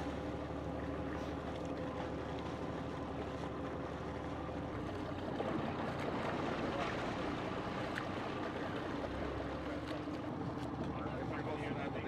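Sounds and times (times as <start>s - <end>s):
boat engine running: 0.0s - 12.0s
water wash: 0.0s - 12.0s
wind: 0.0s - 12.0s.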